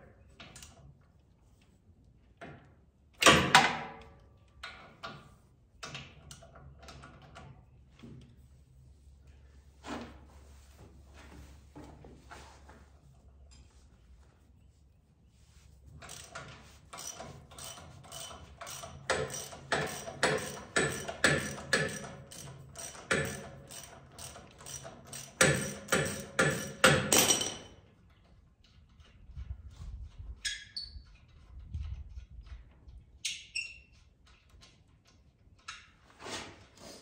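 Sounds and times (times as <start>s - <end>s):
ratchet wrench clicking: 16.1s - 26.9s.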